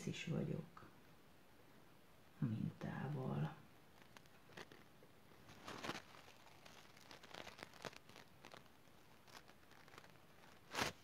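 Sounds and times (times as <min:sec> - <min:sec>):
piping bag crinkling: 0:02.8 - 0:11.0.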